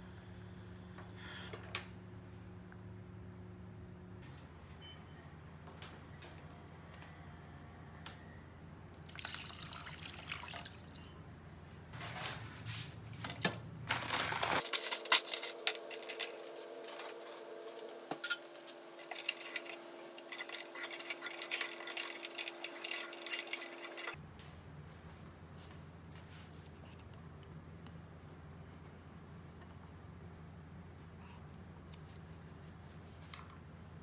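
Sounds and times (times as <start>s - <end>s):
water pouring into saucepan: 9.0s - 10.9s, 19.0s - 24.2s
ice cubes clinking: 19.0s - 24.2s.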